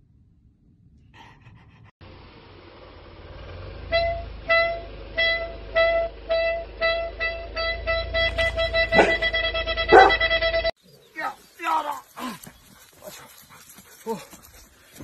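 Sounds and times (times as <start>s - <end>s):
low steady rumble: 0.0s - 10.7s.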